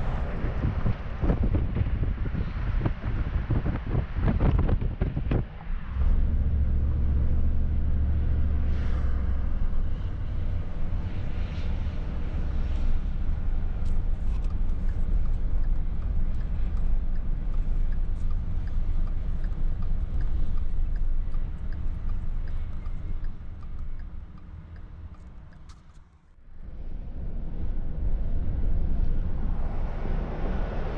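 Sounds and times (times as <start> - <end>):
vehicle road and engine rumble: 0.0 - 30.9
faint regular ticking: 12.7 - 26.2.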